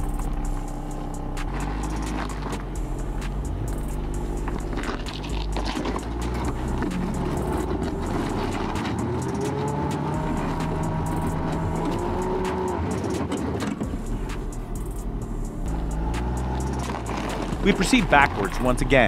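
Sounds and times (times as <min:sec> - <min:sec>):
engine running under load: 0:00.0 - 0:19.0.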